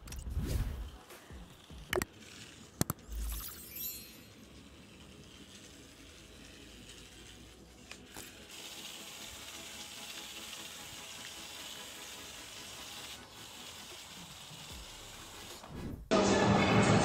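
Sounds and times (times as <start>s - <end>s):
small electric motor whirring: 1.3s - 15.8s.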